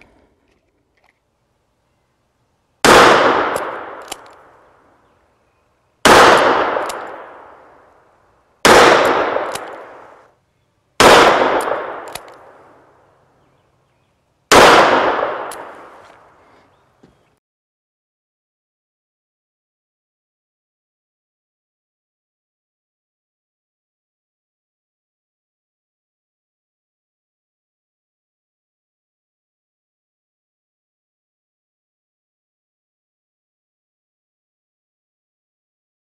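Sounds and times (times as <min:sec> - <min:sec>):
revolver gunshots with echo: 0:02.8 - 0:04.5, 0:06.0 - 0:07.8, 0:08.6 - 0:10.2, 0:11.0 - 0:12.7, 0:14.5 - 0:16.0.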